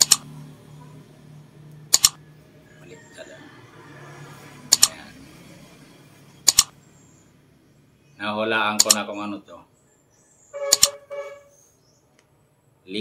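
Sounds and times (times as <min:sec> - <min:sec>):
double mouse clicks: 0:00.0 - 0:00.2, 0:01.9 - 0:02.2, 0:04.7 - 0:04.9, 0:06.5 - 0:06.7, 0:08.8 - 0:09.0, 0:10.7 - 0:11.0.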